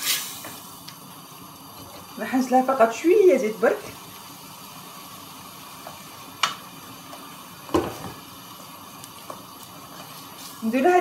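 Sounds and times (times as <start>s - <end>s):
food sizzling in oil: 0.0s - 11.0s
wooden spoon knocking a pot: 7.7s - 8.2s.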